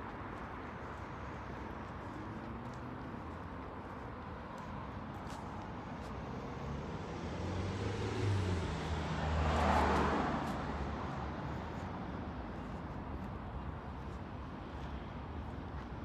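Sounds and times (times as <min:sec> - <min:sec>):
car passing: 0:01.4 - 0:12.9.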